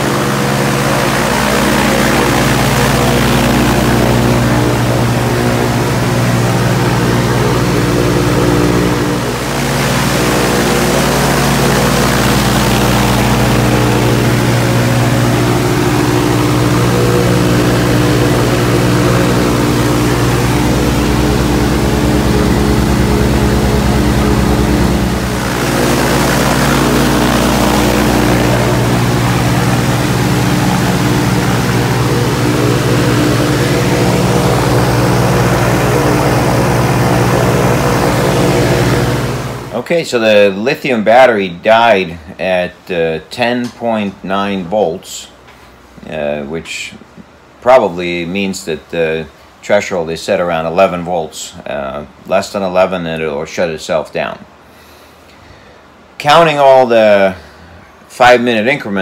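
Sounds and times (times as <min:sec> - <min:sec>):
aircraft engine and propeller: 0:00.0 - 0:39.8.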